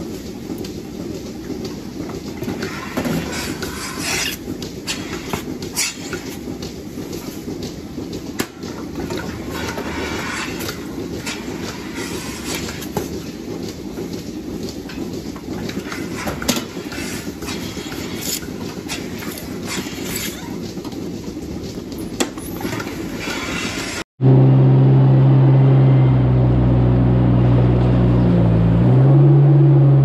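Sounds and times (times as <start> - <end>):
clicks and clanks of hoses: 0.0 - 23.6.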